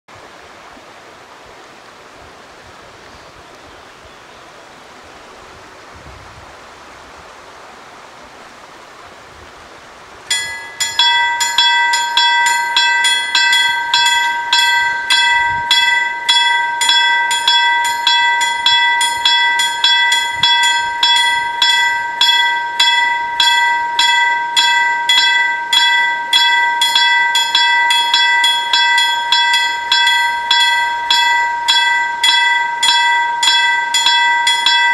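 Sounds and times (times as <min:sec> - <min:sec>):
level crossing warning bells: 0:10.3 - 0:34.9.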